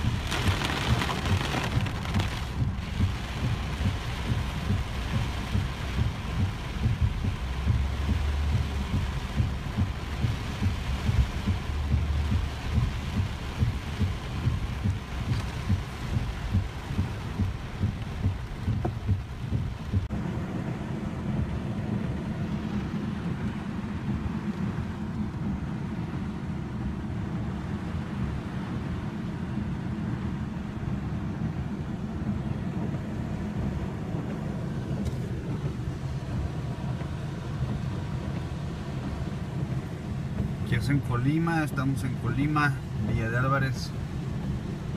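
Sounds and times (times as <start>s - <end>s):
rhythmic thumping: 0.0s - 20.1s
car engine and tyres on wet road: 0.0s - 44.9s.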